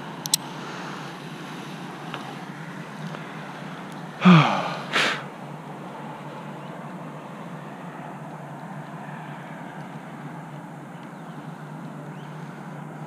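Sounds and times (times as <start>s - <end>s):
sharp metallic click: 0.2s - 0.5s
breathy exhale: 4.2s - 5.3s
man grunting exhale: 4.2s - 5.3s.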